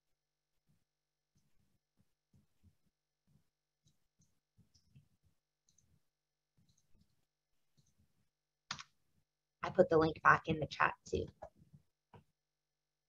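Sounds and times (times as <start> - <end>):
mouse and keyboard clicks: 8.7 - 8.9.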